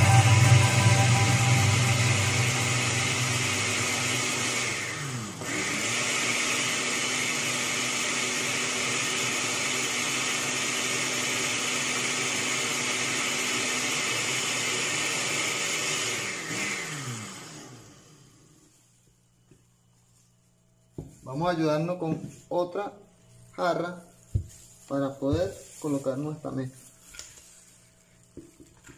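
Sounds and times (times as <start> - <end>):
blender motor running: 0.0 - 18.6.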